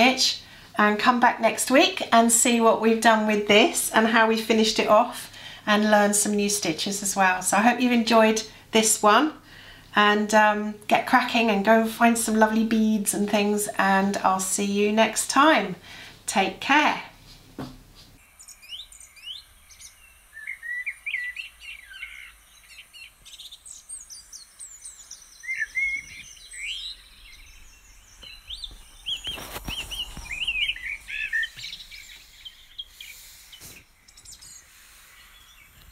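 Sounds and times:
songbirds chirping and trilling: 18.2s - 35.9s.

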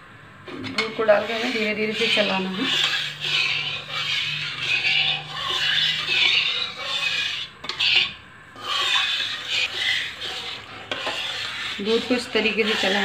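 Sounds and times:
metal spatula scraping metal pan: 0.5s - 13.0s.

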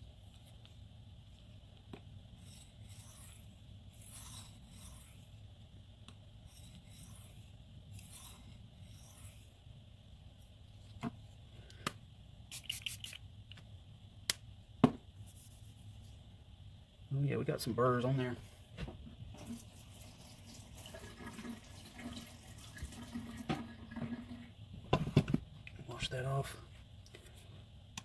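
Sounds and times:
knife scraping on whetstone: 2.4s - 5.4s, 6.4s - 9.5s.

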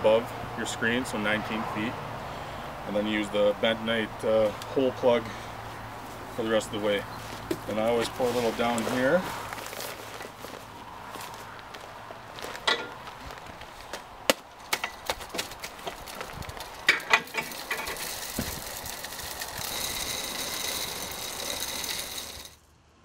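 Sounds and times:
paper bag handled: 7.2s - 22.5s
chips clicking and rattling: 14.9s - 22.6s
chips pouring with rushing hiss: 16.0s - 22.6s.

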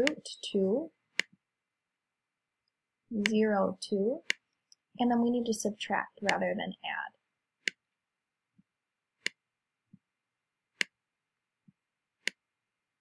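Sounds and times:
computer mouse clicking: 0.0s - 0.2s.

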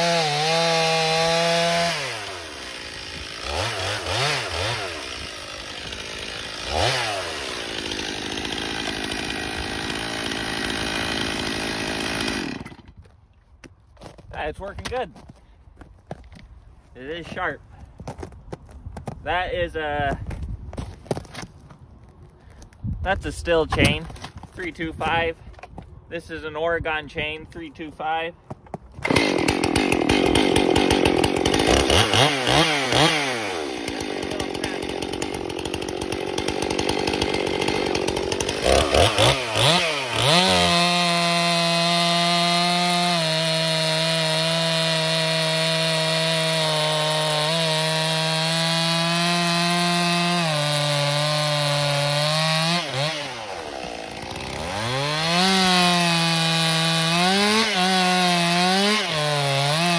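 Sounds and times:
chainsaw cutting log: 0.0s - 15.3s, 28.6s - 59.9s.

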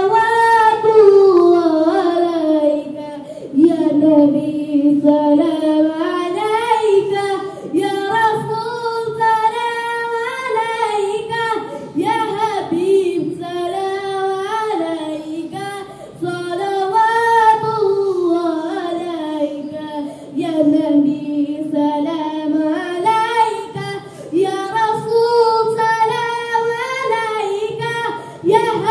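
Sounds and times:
boy singing unaccompanied: 0.0s - 28.9s.

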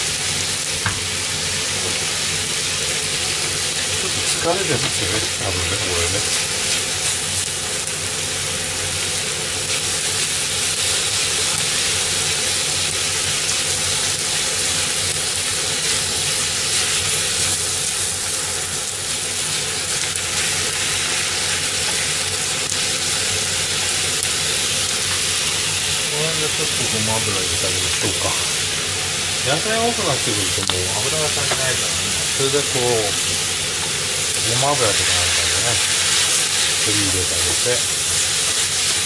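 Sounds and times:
food sizzling in a frying pan: 0.0s - 39.0s
chopsticks stirring food: 3.3s - 7.2s, 20.1s - 28.6s, 29.5s - 39.0s.

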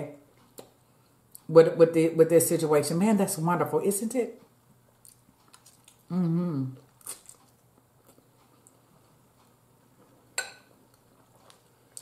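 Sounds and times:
faint chewing: 4.9s - 12.0s.

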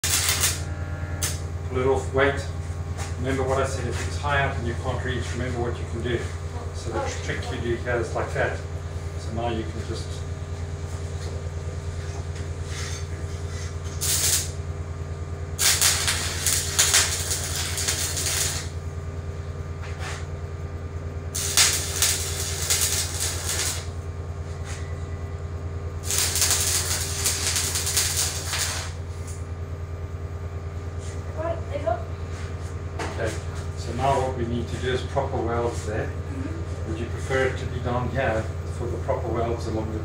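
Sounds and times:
welding arc crackling: 0.0s - 1.5s, 13.2s - 19.1s, 21.1s - 24.4s, 25.9s - 29.6s
steady low hum: 0.0s - 40.0s.

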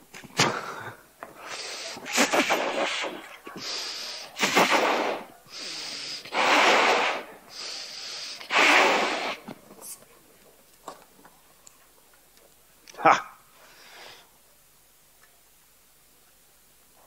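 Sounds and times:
breaths blowing up balloon: 0.4s - 9.5s
quick intake of air: 1.4s - 9.4s.

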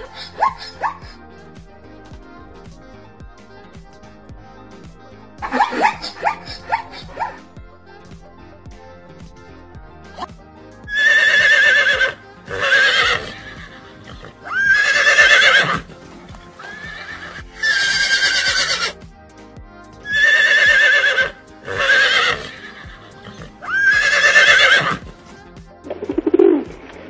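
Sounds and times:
horses neighing: 10.9s - 16.0s, 16.6s - 19.0s, 20.1s - 25.2s.

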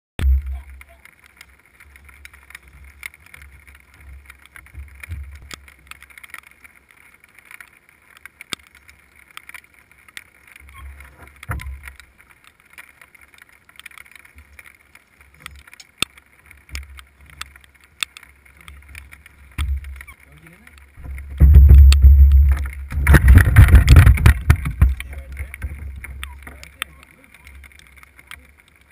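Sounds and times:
low rumbling: 20.9s - 26.9s.

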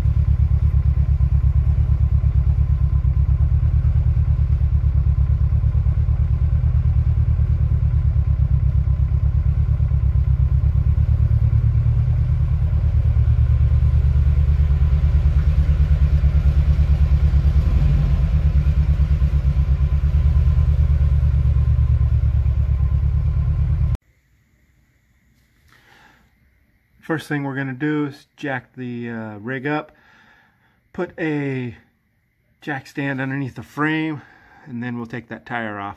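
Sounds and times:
vehicle engine running: 0.0s - 24.0s.

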